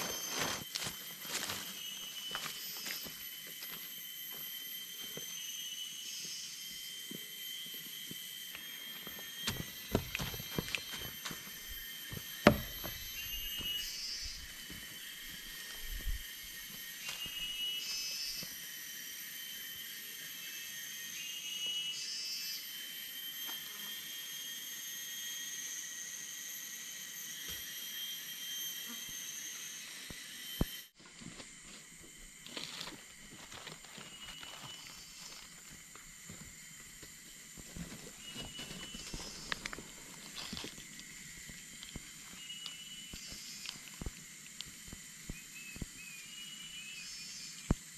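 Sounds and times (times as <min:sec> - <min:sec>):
footsteps: 0:00.0 - 0:03.8, 0:09.0 - 0:16.2
insects buzzing: 0:00.0 - 0:47.9
short rising insect call: 0:00.0 - 0:47.9.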